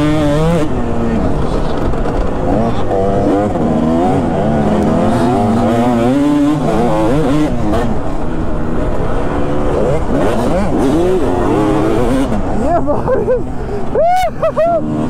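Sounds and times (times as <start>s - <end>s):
two-stroke motorcycle engine revving: 0.0s - 13.6s.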